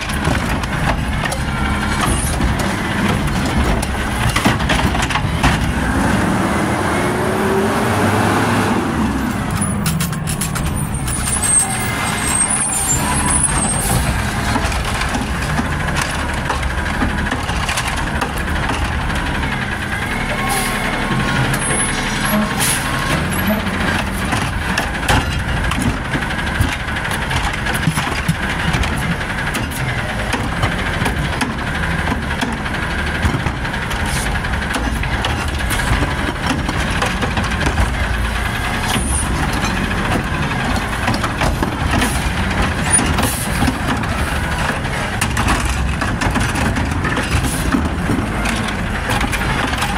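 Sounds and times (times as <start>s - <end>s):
garbage truck engine revving: 0.0s - 49.9s
metal clanks: 9.4s - 19.8s.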